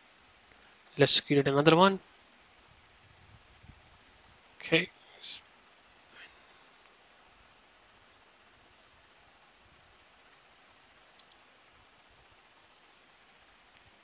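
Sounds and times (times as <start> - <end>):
computer keyboard clicks: 11.2 - 11.4.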